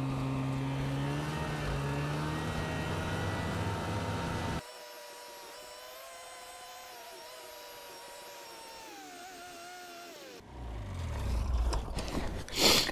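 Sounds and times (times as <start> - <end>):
snowmobile engine running: 0.0 - 4.6, 10.4 - 12.8.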